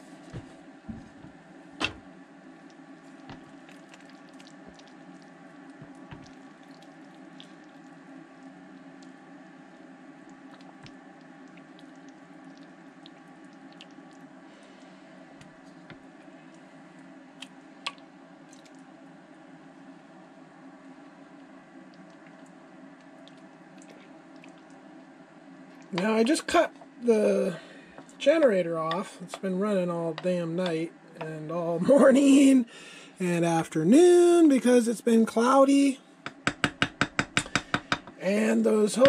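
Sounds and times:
low hum: 0.0s - 34.5s
wooden spoon stirring thick stew: 3.0s - 7.6s, 28.0s - 31.4s.

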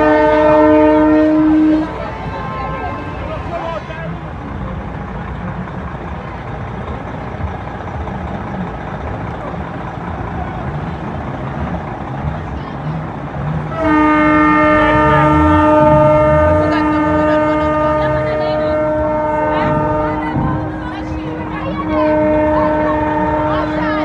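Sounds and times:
truck air horn blowing: 0.0s - 4.4s, 13.7s - 24.0s
murmur of crowd: 0.0s - 24.0s.

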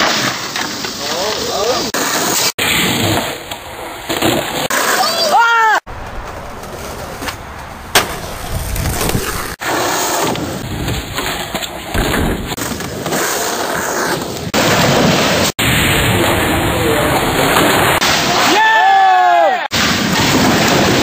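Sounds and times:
skateboard wheels rolling: 0.0s - 18.5s
skateboard clacks: 6.0s - 14.8s.

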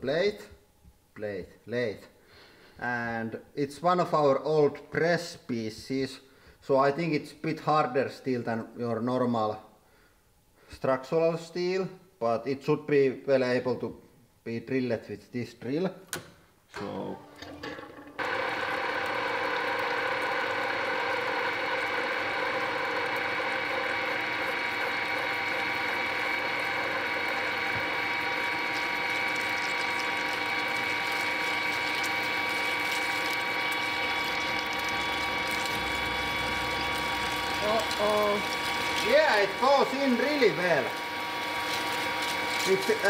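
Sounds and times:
drill boring into steel: 17.4s - 43.0s
metal lathe whining: 17.4s - 43.0s.

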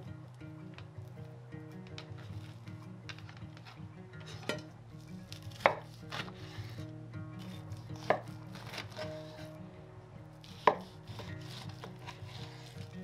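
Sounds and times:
knife cutting through ribs: 5.3s - 9.5s, 10.4s - 13.0s.

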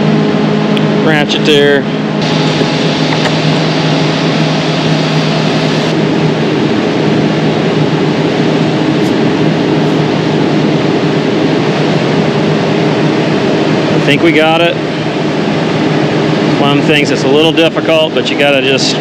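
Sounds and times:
low machine hum: 0.0s - 19.0s
torch flame hissing: 2.2s - 6.1s.

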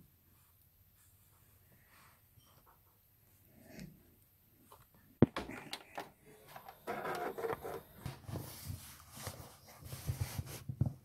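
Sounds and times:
rustling handling noise: 4.6s - 11.0s.

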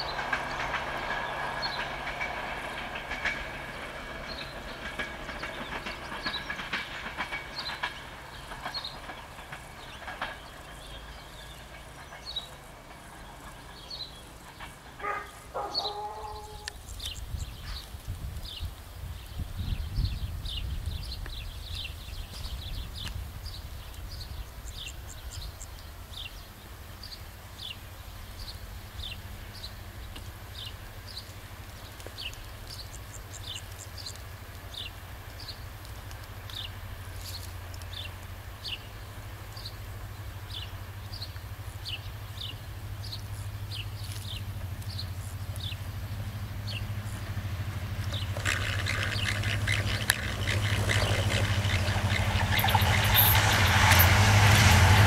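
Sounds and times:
wheels on rails: 0.0s - 55.0s
locomotive engine drone: 26.0s - 55.0s.

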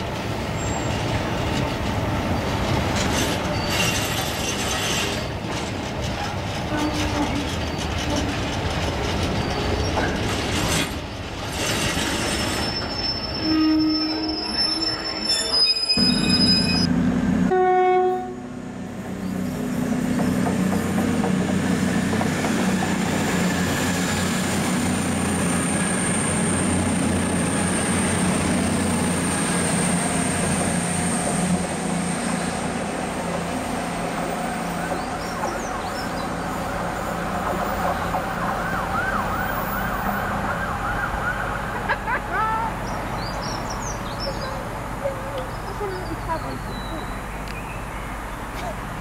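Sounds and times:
diesel train engine rumble: 0.0s - 49.0s
high-pitched train squeal: 3.0s - 5.4s, 9.2s - 16.9s.

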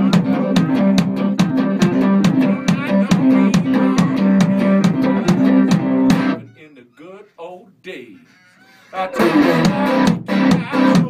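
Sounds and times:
electric guitar blues riff: 0.0s - 8.2s, 8.9s - 11.0s.

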